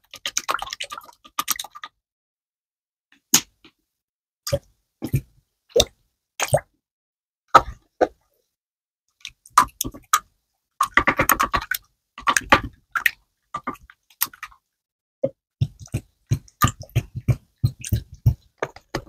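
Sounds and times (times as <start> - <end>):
slime squelching in a bowl: 15.6 - 19.0.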